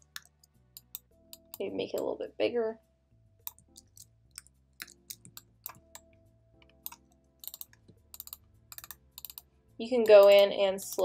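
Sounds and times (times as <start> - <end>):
computer mouse clicks: 0.0 - 1.6, 3.4 - 6.1, 6.7 - 11.0
keyboard keys clicking: 3.5 - 11.0.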